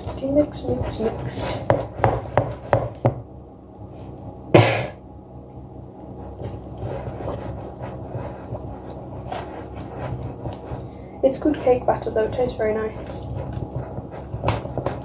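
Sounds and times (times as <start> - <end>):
batter scraping in bowl: 6.1 - 15.0.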